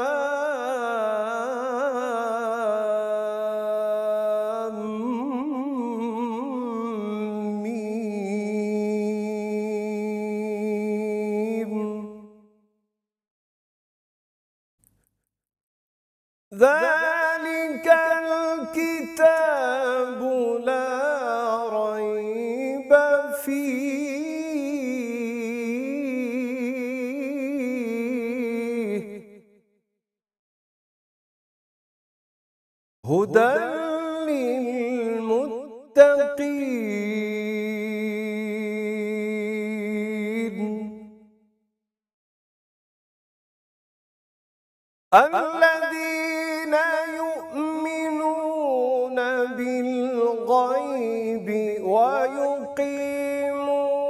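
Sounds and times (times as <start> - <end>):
man reciting melodically: 0.0 - 12.3, 16.5 - 29.2, 33.0 - 41.0, 45.2 - 54.0.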